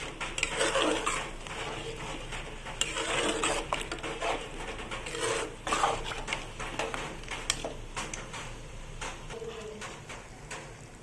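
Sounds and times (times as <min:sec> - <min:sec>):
spoon stirring thick stew: 0:00.0 - 0:10.9.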